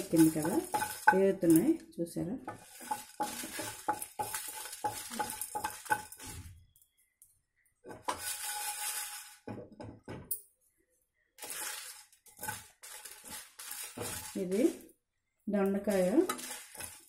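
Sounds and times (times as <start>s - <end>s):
spatula scraping seeds in pan: 0.0s - 1.3s, 2.5s - 6.5s, 7.9s - 9.4s, 11.4s - 14.9s, 15.8s - 17.0s
seeds hissing on hot metal: 2.6s - 6.4s, 8.1s - 9.4s, 11.4s - 14.8s.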